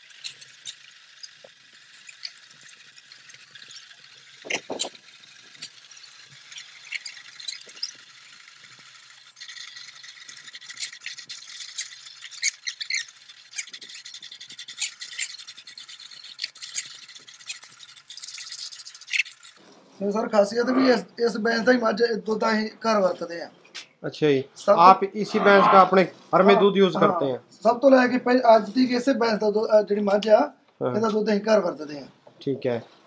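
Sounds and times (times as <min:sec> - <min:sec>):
milk squirting into buckets: 0:00.0 - 0:19.7.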